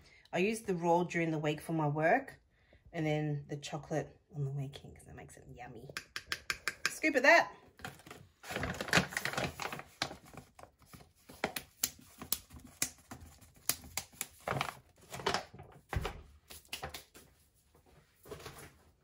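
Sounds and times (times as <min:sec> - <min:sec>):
small taps and clicks: 0:05.9 - 0:07.0
paper bag rustling and crinkling: 0:07.8 - 0:16.2.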